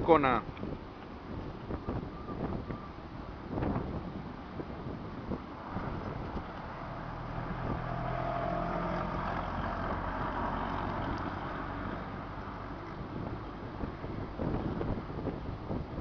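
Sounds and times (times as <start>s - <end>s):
strong wind on microphone: 0.0s - 16.0s
small car driving past: 5.6s - 13.1s.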